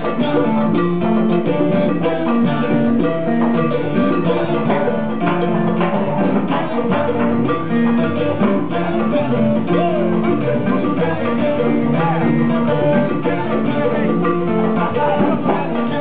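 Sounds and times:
electric bass notes: 0.0 - 16.0
latin percussion groove: 0.0 - 16.0.

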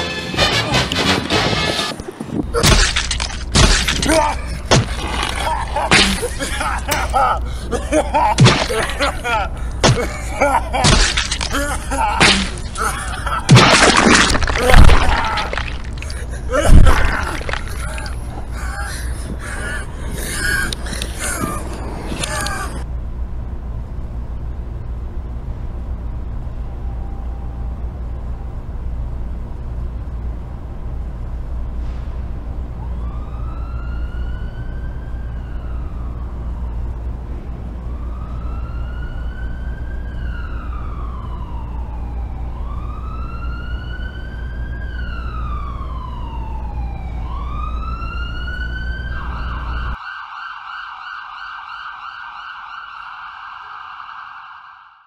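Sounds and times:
low street rumble: 0.0 - 50.0
emergency vehicle siren: 26.2 - 29.4, 32.5 - 55.0.

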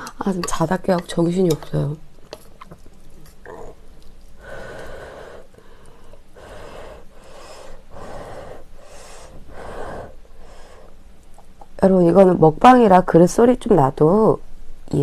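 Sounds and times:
person blowing breathy puffs: 4.4 - 11.0.

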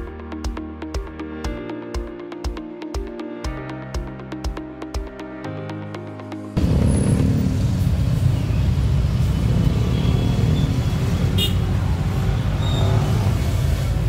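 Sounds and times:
engines and tyres rumbling in traffic: 6.6 - 14.0.

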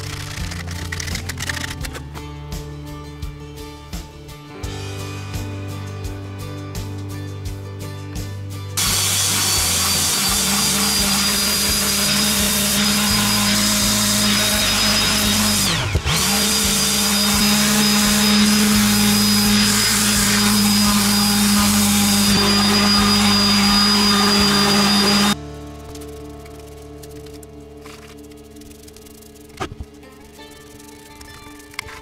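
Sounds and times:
power tool motor whining: 0.0 - 2.0, 8.8 - 32.0.

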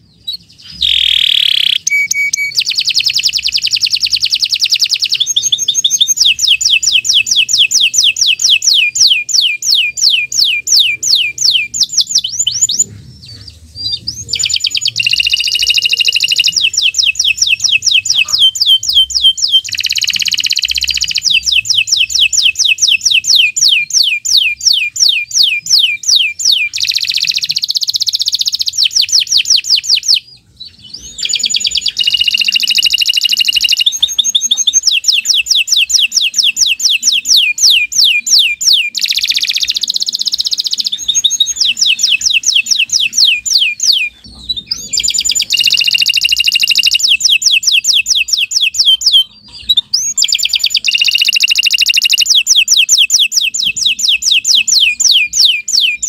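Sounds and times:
canary singing trills: 0.0 - 56.0.

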